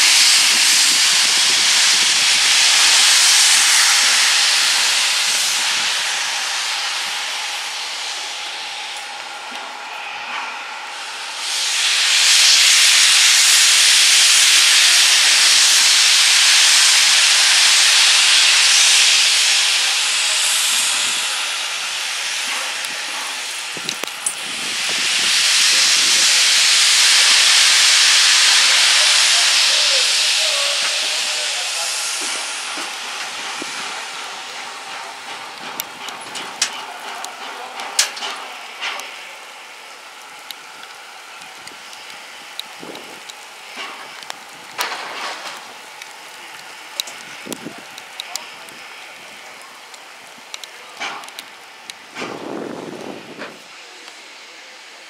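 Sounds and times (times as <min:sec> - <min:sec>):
steam locomotive hissing: 0:00.0 - 0:55.0.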